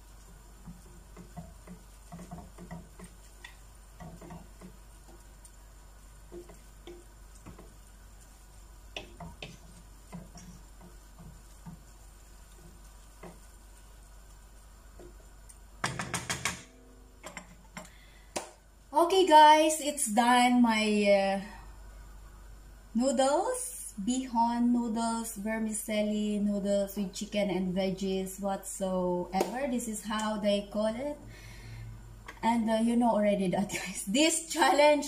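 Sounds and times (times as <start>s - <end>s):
wooden spatula scraping pot: 0.0s - 14.2s
spatula clatter in pot: 0.6s - 5.3s.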